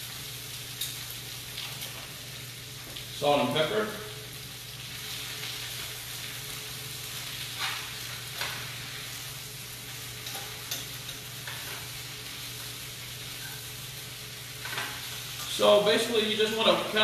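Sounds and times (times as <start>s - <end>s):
vegetables sizzling in oil: 0.0s - 17.0s
utensil scraping skillet: 7.3s - 9.2s, 10.1s - 12.1s.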